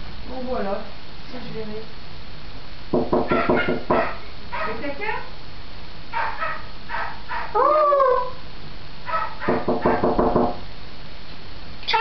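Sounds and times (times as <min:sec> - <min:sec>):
parrot calls: 0:03.1 - 0:04.9, 0:06.1 - 0:10.4.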